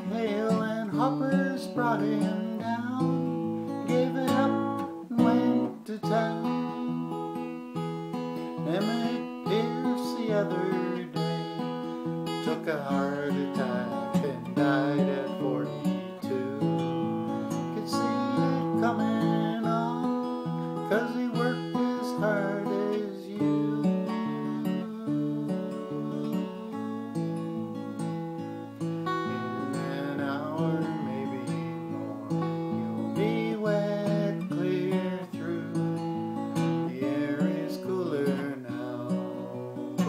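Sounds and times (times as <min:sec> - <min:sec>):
acoustic guitar folk song: 0:00.0 - 0:40.0.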